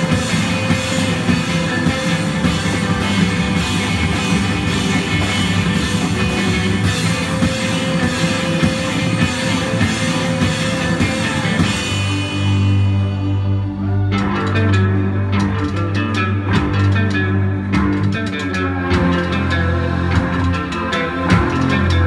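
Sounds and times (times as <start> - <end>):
drum kit with cymbals: 0.0 - 13.6
bass guitar: 0.0 - 22.0
electric guitar: 0.0 - 22.0
keyboard: 0.0 - 22.0.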